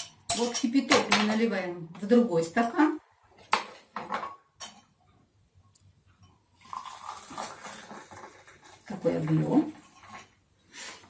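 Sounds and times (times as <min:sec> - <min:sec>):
water pouring into a glass: 0:06.5 - 0:09.0.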